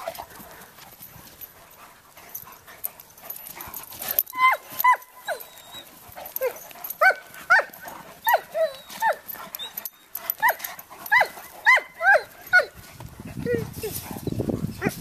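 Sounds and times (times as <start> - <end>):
dog barking and yelping: 4.1 - 12.8.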